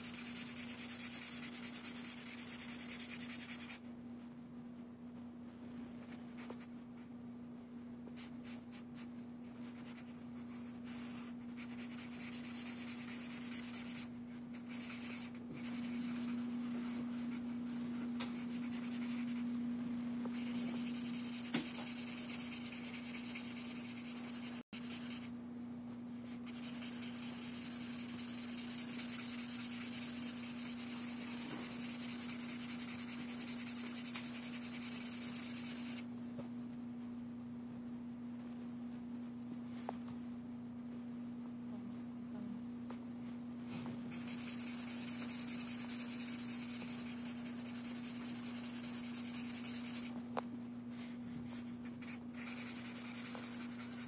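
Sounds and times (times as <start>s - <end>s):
marker rubbing across paper: 0.0s - 3.8s, 8.2s - 19.5s, 20.3s - 25.3s, 26.4s - 36.0s, 44.1s - 50.1s, 51.5s - 54.0s
low hum: 13.5s - 54.0s.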